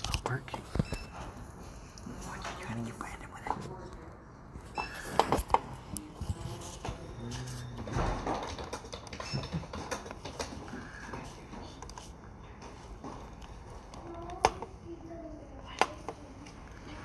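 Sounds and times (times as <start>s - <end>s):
low background hum: 0.0s - 17.0s
faint murmur of voices: 1.8s - 8.5s.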